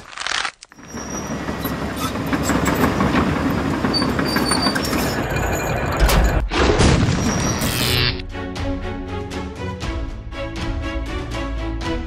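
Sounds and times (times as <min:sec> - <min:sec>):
mechanical rumbling and clattering: 0:00.1 - 0:07.8.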